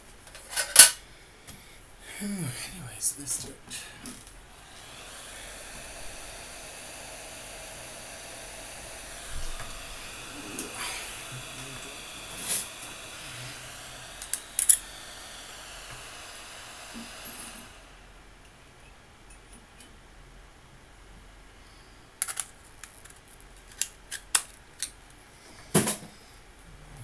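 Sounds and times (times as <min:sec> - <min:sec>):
hot-air station blowing hiss: 0:00.8 - 0:18.7.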